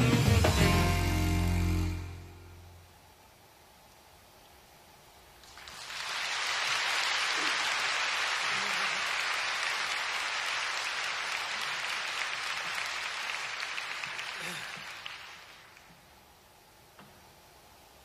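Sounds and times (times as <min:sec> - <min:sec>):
audience applauding: 0:05.4 - 0:16.1.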